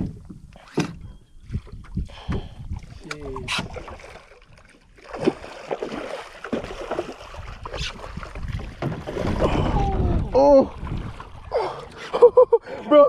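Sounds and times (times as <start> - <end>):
wind buffeting microphone: 0.0 - 4.6, 6.5 - 11.7
person crying out: 9.5 - 10.7.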